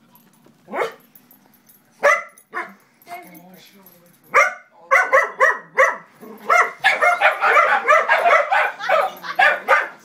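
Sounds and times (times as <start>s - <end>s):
puppy barking: 0.7s - 1.0s, 2.0s - 2.8s, 4.3s - 10.0s.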